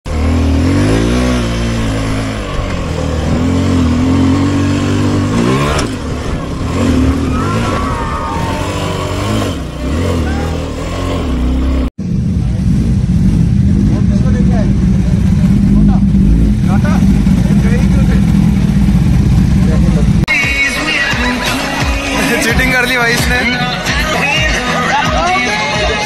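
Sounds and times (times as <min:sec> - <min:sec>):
motorcycle engines revving: 0:00.1 - 0:20.3
people's voices: 0:07.2 - 0:09.1, 0:09.9 - 0:10.8, 0:19.5 - 0:26.0.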